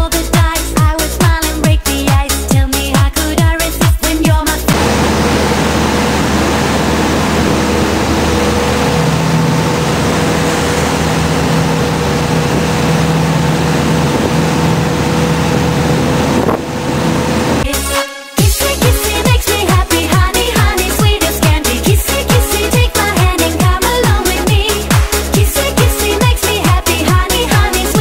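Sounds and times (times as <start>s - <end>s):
motorboat engine: 0.0s - 28.0s
wind buffeting microphone: 4.7s - 17.7s
churning wake rushing: 4.7s - 28.0s.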